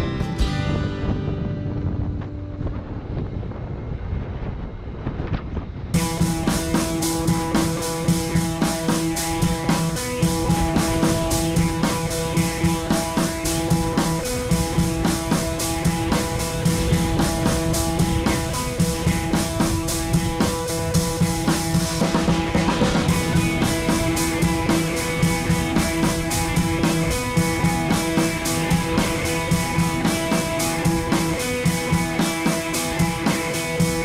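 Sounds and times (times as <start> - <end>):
rock music with drums and guitar: 0.0 - 2.9, 6.0 - 34.0.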